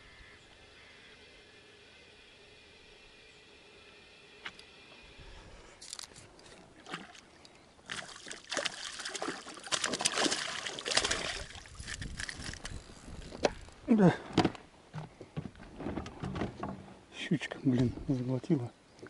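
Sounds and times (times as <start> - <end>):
fish thrashing and splashing in water: 6.8 - 12.6.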